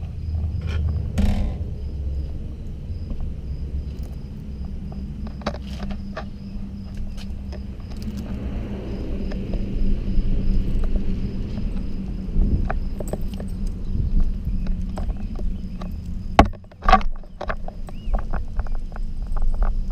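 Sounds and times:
low rumble: 0:00.0 - 0:19.9
steady low hum: 0:00.0 - 0:19.9
faint pulsing high chirp: 0:03.0 - 0:16.4
bicycle clicks and rattles: 0:12.5 - 0:19.9.

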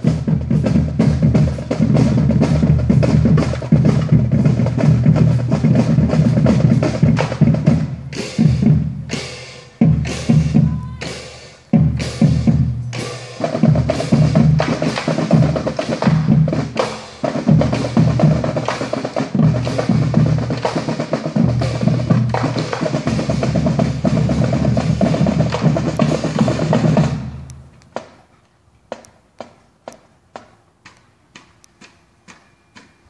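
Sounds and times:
drumline playing a cadence: 0:00.0 - 0:28.3.

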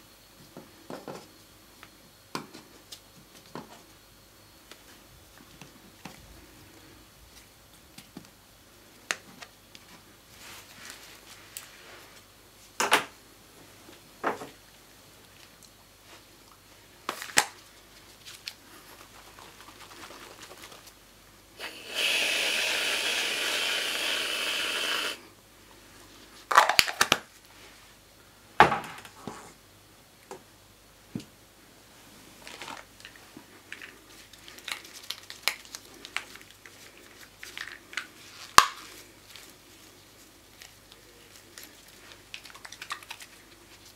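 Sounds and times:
aerosol can spraying hiss: 0:21.6 - 0:25.2.

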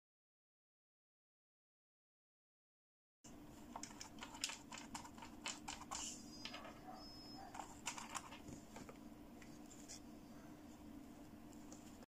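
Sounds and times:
plastic doll clicking and tapping: 0:03.8 - 0:06.0.

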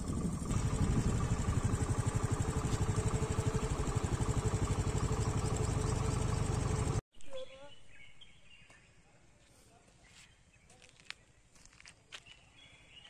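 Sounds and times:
scooter engine running: 0:00.0 - 0:07.0.

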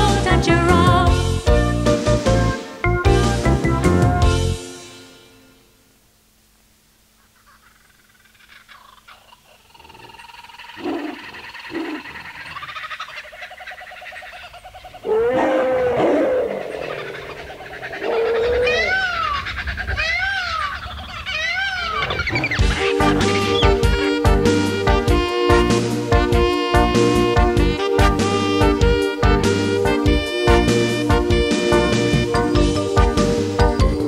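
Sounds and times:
wild animal calls: 0:07.1 - 0:24.2
animal call rising and falling: 0:07.2 - 0:24.1.

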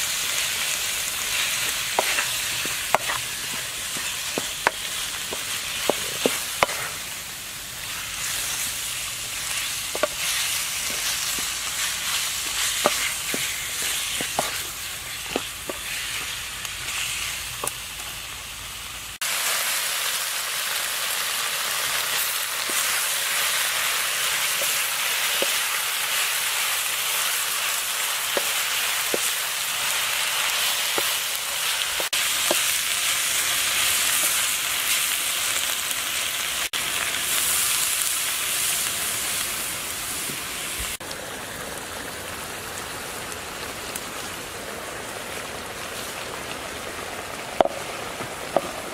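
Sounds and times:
meat sizzling in hot oil: 0:00.0 - 0:48.9
wooden spatula scraping pan: 0:01.2 - 0:07.0, 0:09.3 - 0:17.7.

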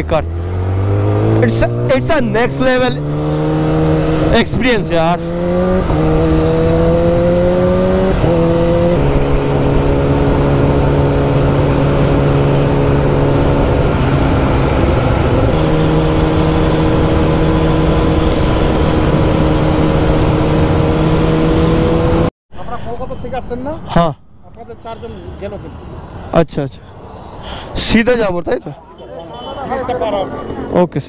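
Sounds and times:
motorcycle engine cruising: 0:00.0 - 0:22.3.

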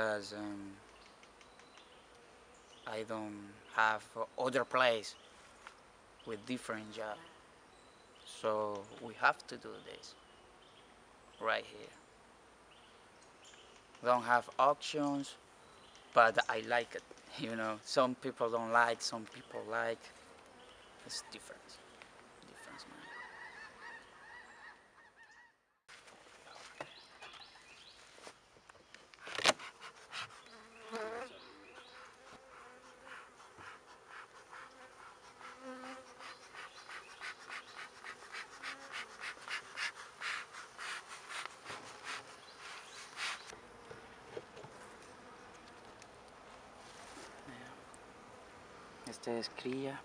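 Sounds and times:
bees buzzing: 0:29.6 - 0:46.3.

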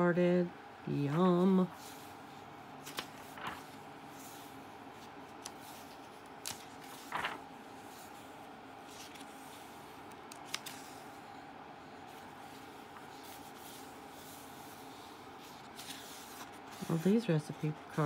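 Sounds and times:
low steady hum: 0:00.0 - 0:18.0
paper rustle of page turning: 0:02.8 - 0:11.1, 0:12.1 - 0:18.0.

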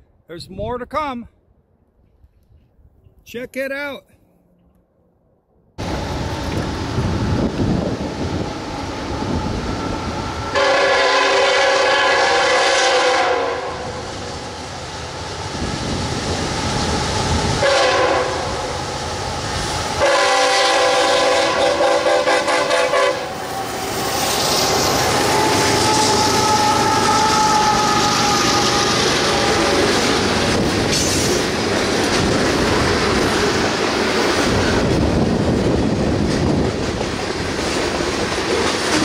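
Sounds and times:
train rumbling by: 0:05.8 - 0:39.0
locomotive air horn: 0:10.5 - 0:13.9, 0:17.6 - 0:18.6, 0:20.0 - 0:23.4, 0:25.2 - 0:29.8.

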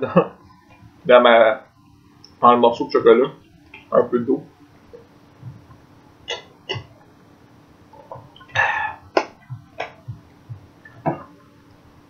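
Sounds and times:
man gulping water: 0:04.9 - 0:07.1, 0:07.9 - 0:11.4
man burping: 0:06.3 - 0:06.9, 0:08.0 - 0:10.0.

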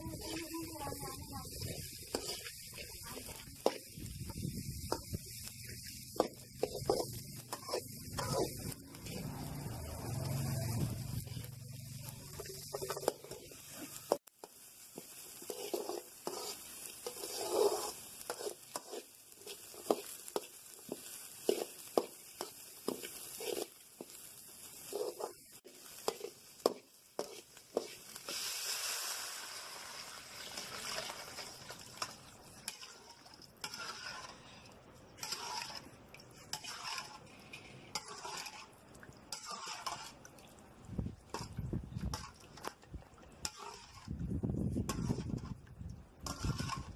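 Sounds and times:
ladle scraping metal pan: 0:00.0 - 0:04.0, 0:04.8 - 0:11.5, 0:12.2 - 0:14.2, 0:15.4 - 0:20.5, 0:30.5 - 0:40.2, 0:41.3 - 0:42.8, 0:43.4 - 0:45.6, 0:46.2 - 0:46.9
water hissing in hot pan: 0:00.0 - 0:34.6
vegetables sizzling in oil: 0:00.0 - 0:45.6, 0:46.2 - 0:46.9.

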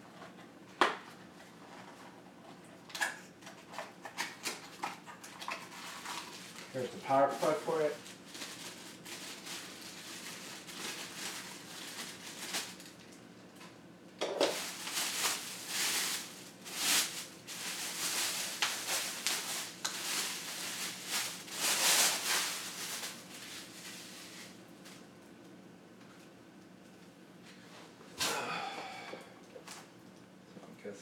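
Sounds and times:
plastic wrap rustling: 0:01.2 - 0:13.6, 0:14.3 - 0:25.2.

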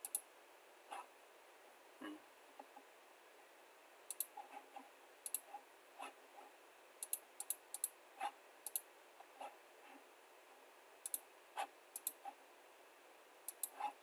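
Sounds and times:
mouse buttons clicking: 0:04.1 - 0:04.4, 0:05.3 - 0:05.5, 0:11.0 - 0:11.2, 0:12.0 - 0:12.2, 0:13.5 - 0:13.8.

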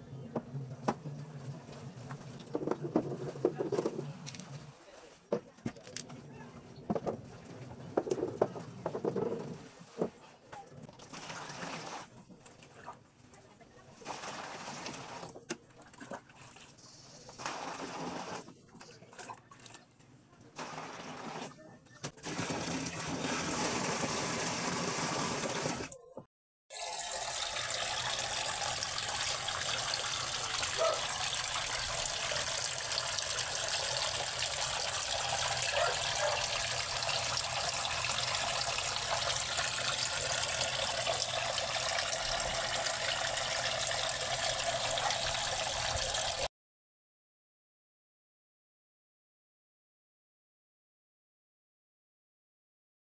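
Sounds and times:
water pouring into a tank: 0:10.9 - 0:13.0, 0:14.0 - 0:16.8, 0:22.2 - 0:25.9, 0:26.7 - 0:46.5.

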